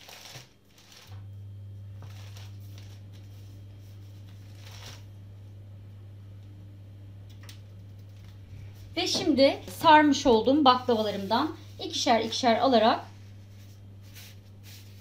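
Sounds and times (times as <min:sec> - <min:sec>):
steady low hum: 0:00.7 - 0:15.0
cloth and pastry sheets rustling: 0:08.4 - 0:15.0.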